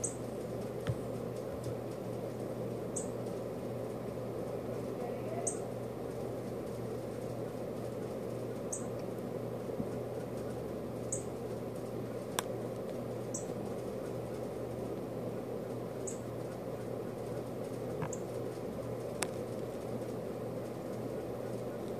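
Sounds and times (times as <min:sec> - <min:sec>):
steady low hum: 0:00.0 - 0:21.9
bird chip notes: 0:05.0 - 0:05.7.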